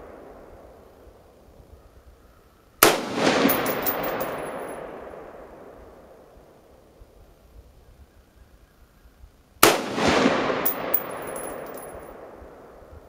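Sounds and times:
rifle shot echoing: 0:09.6 - 0:11.9.

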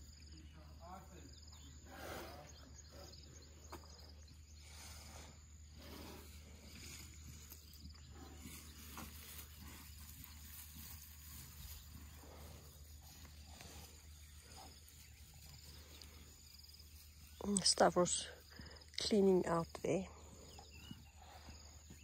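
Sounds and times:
elephant chewing: 0:03.9 - 0:17.7
grass rustling: 0:04.8 - 0:22.0.

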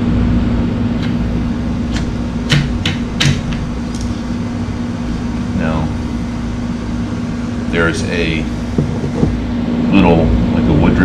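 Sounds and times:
air-conditioning hum: 0:00.0 - 0:11.0
plastic cover knocking on shaft: 0:08.8 - 0:09.4.

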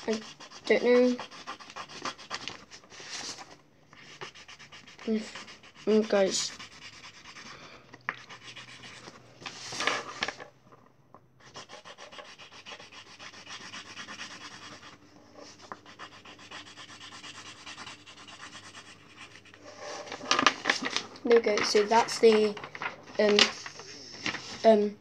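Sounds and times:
pen scribbling on paper: 0:00.0 - 0:02.5, 0:04.0 - 0:07.5, 0:08.2 - 0:09.2, 0:11.4 - 0:20.2.

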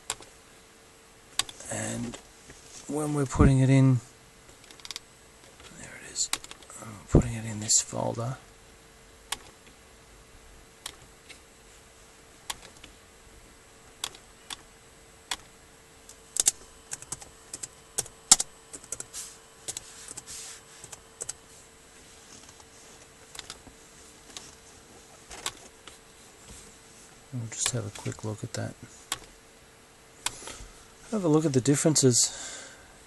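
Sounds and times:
laptop keyboard keystrokes: 0:01.4 - 0:01.6, 0:04.6 - 0:05.0, 0:06.3 - 0:06.7, 0:14.0 - 0:14.7, 0:16.4 - 0:21.4, 0:23.3 - 0:23.6.

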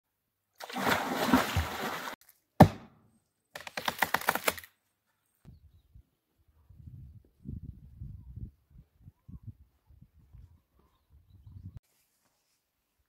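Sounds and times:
water splashing: 0:00.6 - 0:02.2
axe chopping log: 0:02.6 - 0:03.0.

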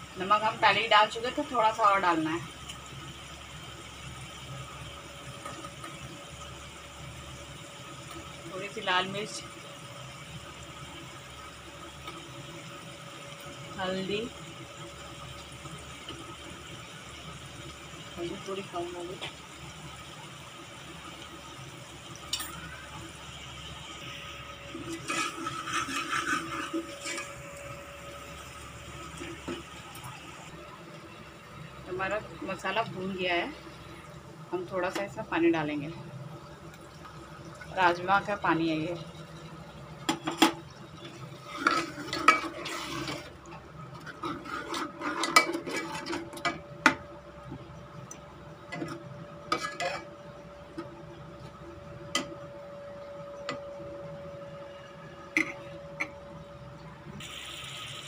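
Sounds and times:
sizzling in oil: 0:00.0 - 0:58.0
spoon stirring and scraping: 0:24.7 - 0:27.5, 0:41.4 - 0:46.6, 0:48.8 - 0:50.2.

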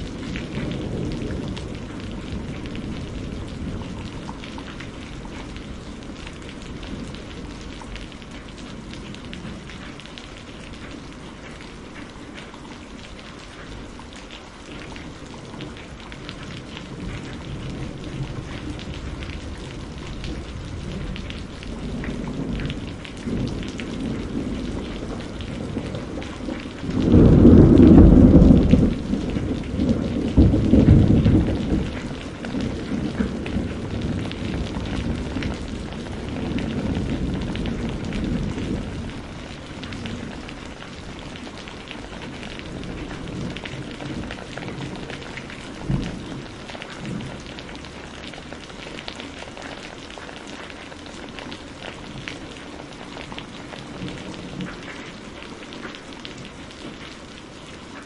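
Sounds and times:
thunder rumbles: 0:00.0 - 0:12.0, 0:14.7 - 0:50.7
heavy rain: 0:00.0 - 0:58.0
sharp thunder crack: 0:27.0 - 0:29.1.

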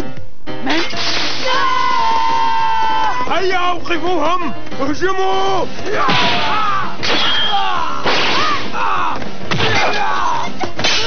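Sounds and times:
background music: 0:00.0 - 0:11.0
fighters yelling: 0:01.4 - 0:03.9, 0:05.1 - 0:10.6
cartoon punches landing: 0:06.0 - 0:08.8.

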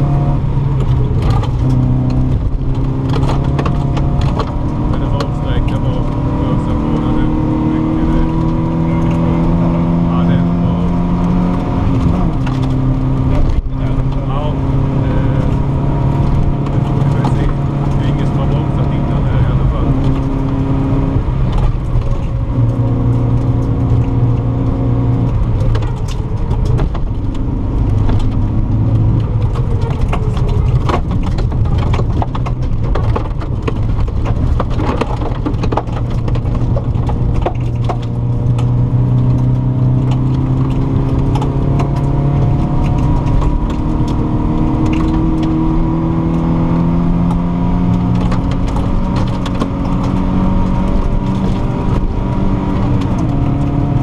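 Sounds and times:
rally car engine revving: 0:00.0 - 0:54.0
gravel clattering against underbody: 0:10.7 - 0:20.8, 0:21.4 - 0:46.6.

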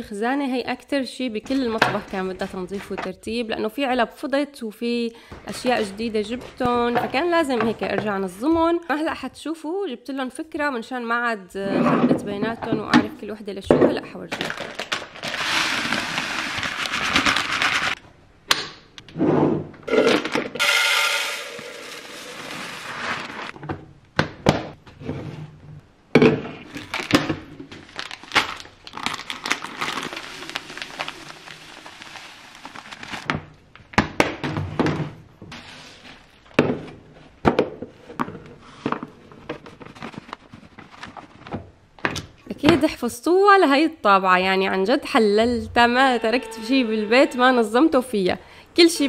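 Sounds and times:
plastic packets crinkling: 0:14.3 - 0:18.0, 0:26.7 - 0:33.3
dry food pouring into containers: 0:14.8 - 0:17.9, 0:20.6 - 0:23.5, 0:28.9 - 0:33.3.

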